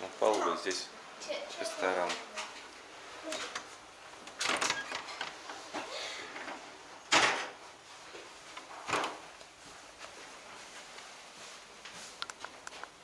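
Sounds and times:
wooden door clattering shut: 0:04.3 - 0:05.4, 0:07.1 - 0:07.6, 0:08.9 - 0:09.2.

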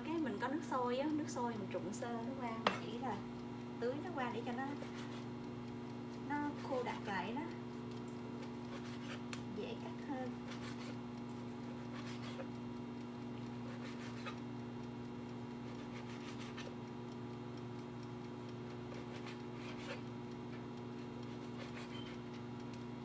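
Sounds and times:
electrical appliance hum: 0:00.0 - 0:23.0
knife slicing on cutting board: 0:08.7 - 0:09.3, 0:10.5 - 0:10.9, 0:15.8 - 0:16.7.

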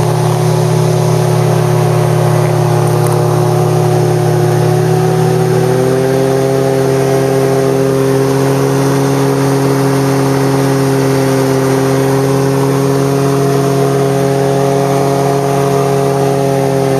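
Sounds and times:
airflow noise: 0:00.0 - 0:16.9
light aircraft engine droning: 0:00.0 - 0:16.9.

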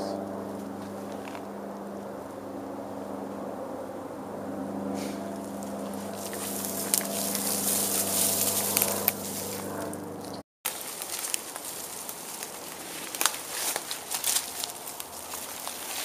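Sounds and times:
steady low hum: 0:00.0 - 0:16.0
brush rustling: 0:04.9 - 0:16.0
footsteps crunching dry leaves: 0:05.0 - 0:16.0.

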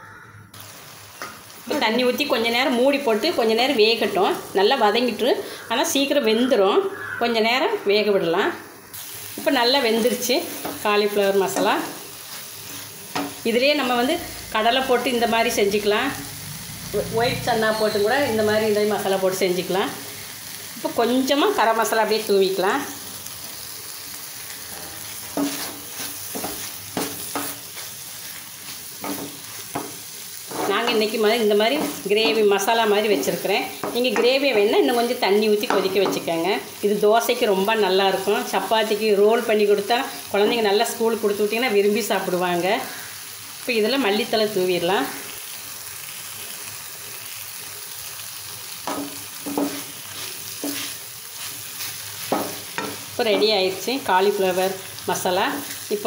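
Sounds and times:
food sizzling in a pan: 0:00.0 - 0:56.0
wooden spatula scraping a pan: 0:24.7 - 0:32.5, 0:48.9 - 0:53.6
spatula knocking against pan: 0:48.9 - 0:49.8, 0:52.3 - 0:53.6.

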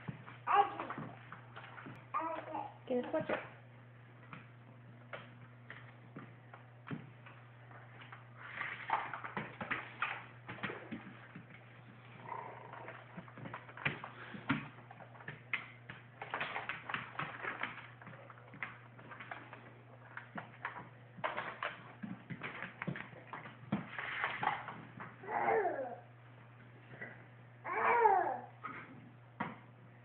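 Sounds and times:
toddler babbling: 0:00.5 - 0:01.0, 0:02.2 - 0:02.8, 0:25.2 - 0:26.0, 0:27.6 - 0:28.6.

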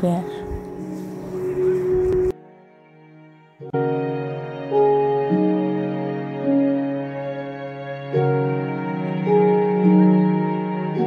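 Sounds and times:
soft sustained chord music: 0:00.0 - 0:11.0.

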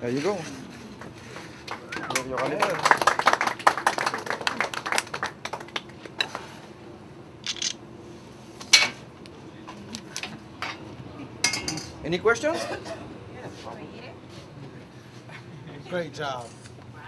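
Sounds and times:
dishes clinking on steel counter: 0:10.6 - 0:12.0.

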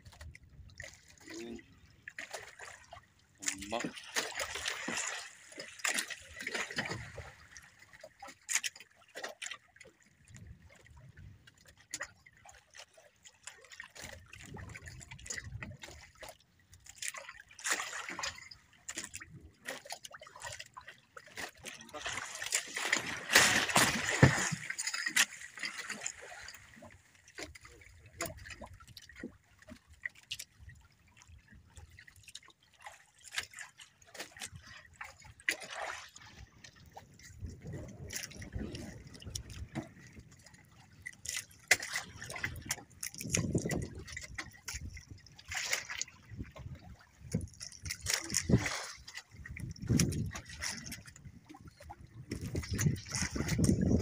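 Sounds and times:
water lapping against boat hull: 0:00.0 - 0:54.0.

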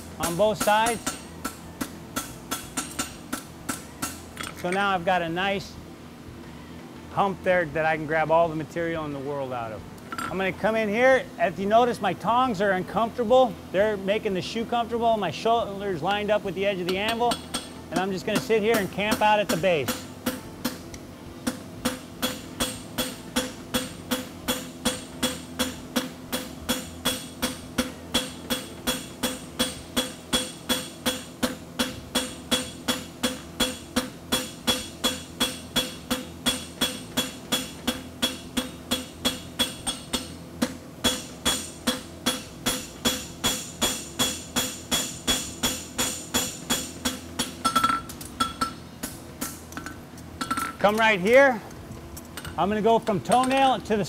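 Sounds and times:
hammer striking metal on anvil: 0:00.2 - 0:04.2, 0:21.5 - 0:49.6.

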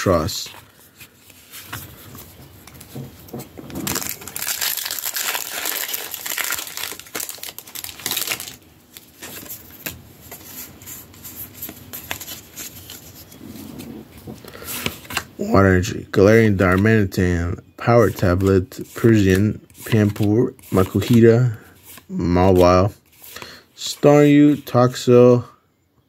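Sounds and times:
foil wrapper crinkling and tearing: 0:03.8 - 0:09.5.

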